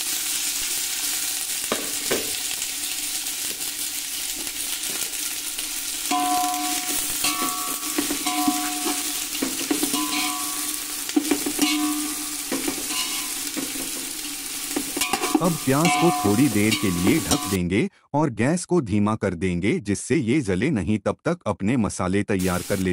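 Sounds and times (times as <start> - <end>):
onions sizzling in hot oil: 0.0 - 17.6, 22.4 - 22.9
spatula scraping metal pot: 6.1 - 14.0, 14.7 - 17.6.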